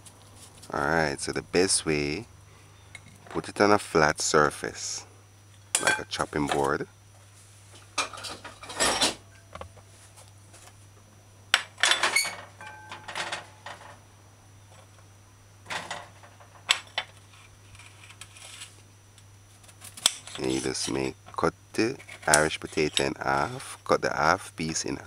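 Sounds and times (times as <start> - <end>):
faint low hum: 0.0 - 25.0
kitchenware clattering: 8.0 - 9.2.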